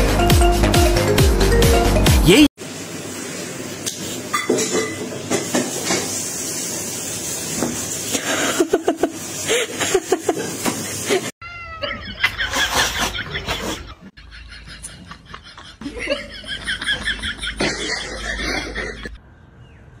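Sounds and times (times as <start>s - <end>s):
cat calling: 11.4s - 12.6s.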